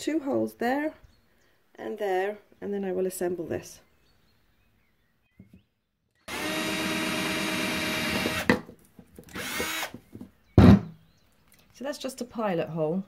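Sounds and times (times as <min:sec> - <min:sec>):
cordless drill boring: 0:06.3 - 0:08.6, 0:09.2 - 0:10.0
drill click: 0:06.3 - 0:08.6, 0:09.2 - 0:10.0
loud knock: 0:10.6 - 0:11.0.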